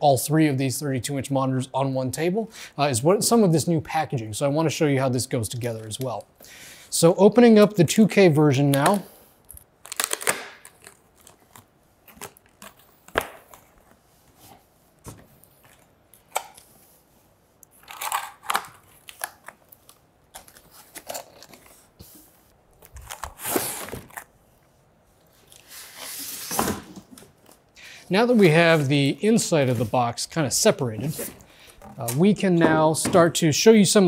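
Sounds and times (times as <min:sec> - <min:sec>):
cardboard tearing: 0:09.8 - 0:13.8, 0:22.9 - 0:24.3.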